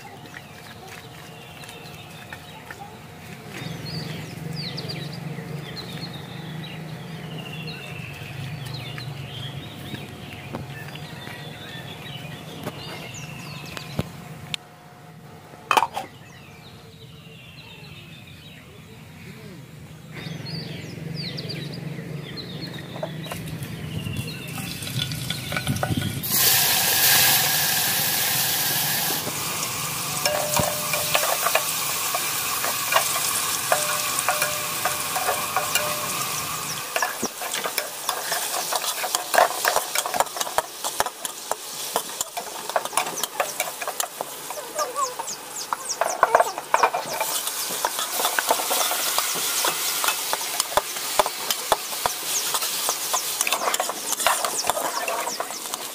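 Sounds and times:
food sizzling in a pan: 24.4 - 55.9
spatula scraping a pan: 30.3 - 44.6, 45.9 - 55.9.

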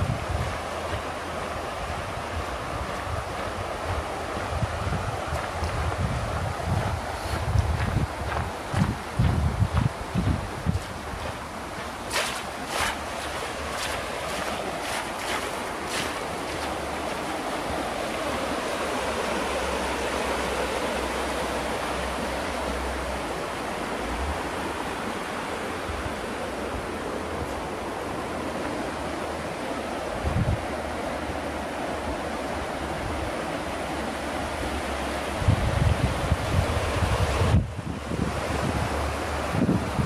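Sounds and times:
wind buffeting microphone: 0.0 - 25.1, 30.1 - 31.0, 34.5 - 40.0
river running over rocks: 0.0 - 40.0
footsteps: 6.7 - 17.3.

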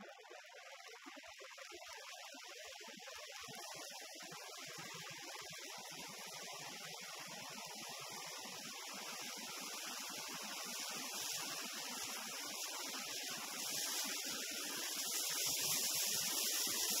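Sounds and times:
wind and road noise hiss: 4.8 - 17.0.

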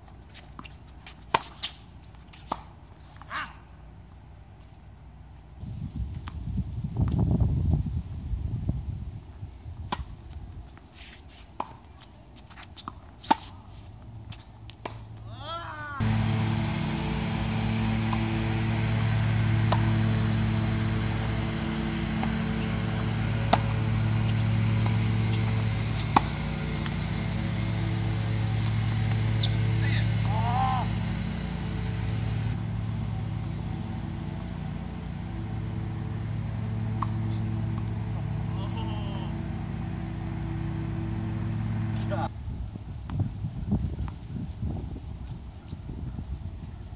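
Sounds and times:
shoe squeak: 0.3 - 3.5, 10.9 - 14.6, 28.6 - 30.2
tennis ball struck by rackets: 0.6 - 3.3, 12.8 - 13.5, 16.0 - 32.6, 36.8 - 38.5
low mechanical hum: 13.1 - 46.9.

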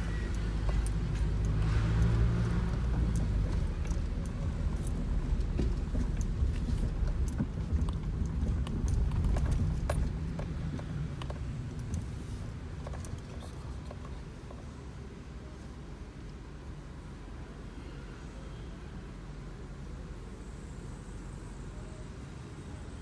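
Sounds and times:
car engine and road rumble: 0.0 - 23.0.

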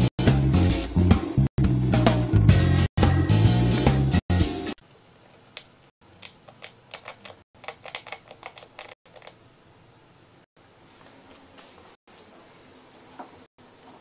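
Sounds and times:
loud music: 0.0 - 4.8.

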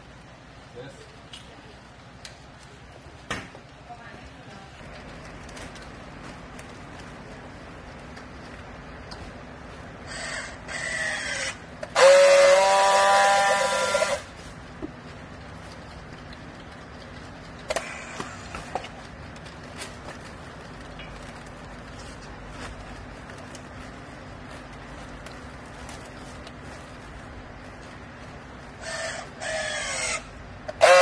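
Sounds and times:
strapping tool motor whine: 10.1 - 14.3.

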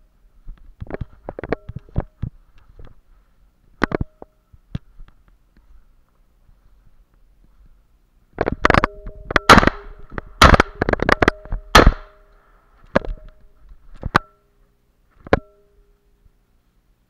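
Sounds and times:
shotgun shots: 8.7 - 12.2.

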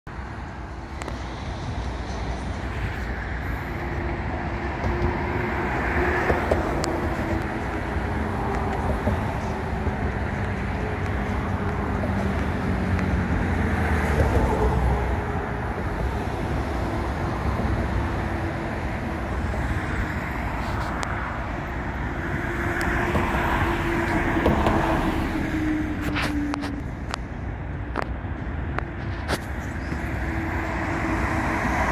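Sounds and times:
road traffic rumble: 0.1 - 31.9.

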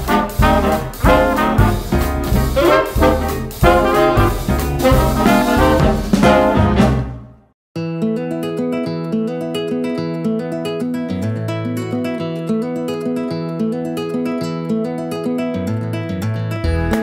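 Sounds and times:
upbeat background music: 0.0 - 7.4, 16.6 - 17.0.

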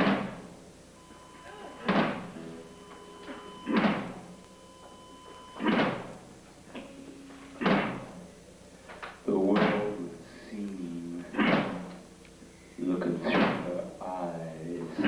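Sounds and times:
guitar and bass notes: 0.0 - 8.6.

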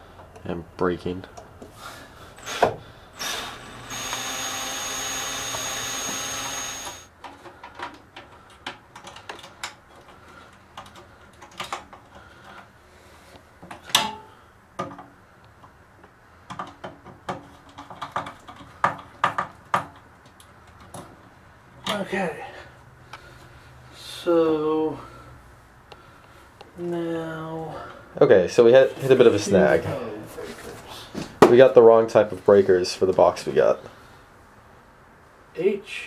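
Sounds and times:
cordless drill driving screw: 2.4 - 7.1.

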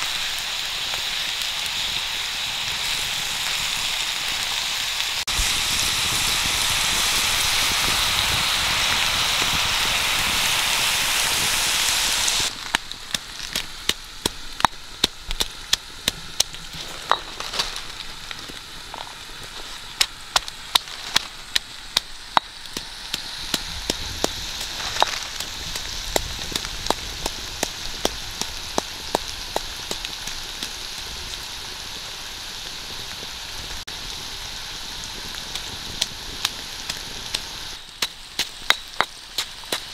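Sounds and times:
food sizzling on hot stone: 0.0 - 39.9
pestle pounding in stone mortar: 13.5 - 17.4, 20.0 - 30.4, 38.0 - 39.9.

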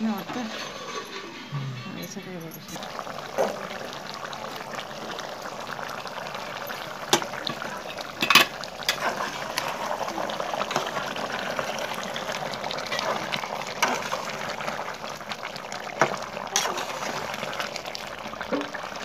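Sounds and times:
curry bubbling in a pan: 2.7 - 19.0
metal ladle clinking on pan: 8.2 - 8.6.

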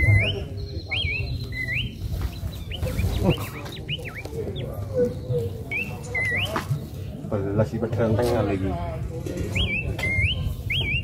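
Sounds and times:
bird chirping: 0.0 - 7.2, 9.5 - 11.0.

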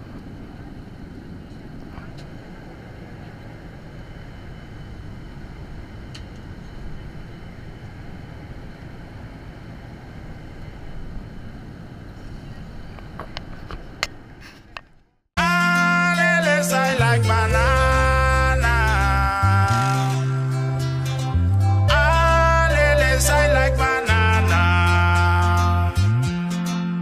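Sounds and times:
airliner cabin engine rush: 0.0 - 14.8
music: 15.4 - 27.0.

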